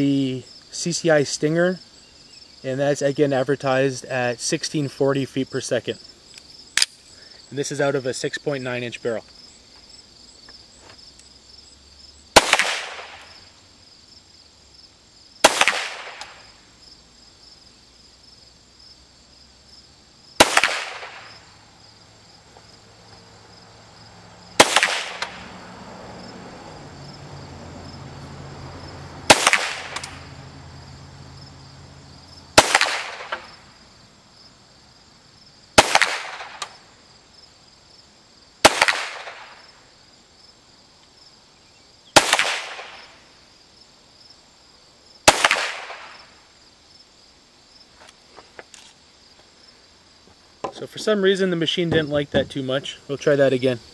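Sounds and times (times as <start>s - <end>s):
pistol shots with short echo: 12.4s - 13.2s, 15.4s - 16.4s, 20.4s - 21.4s, 24.6s - 25.4s, 29.3s - 30.2s, 32.6s - 33.5s, 35.8s - 36.8s, 38.6s - 39.5s, 42.2s - 43.1s, 45.3s - 46.2s.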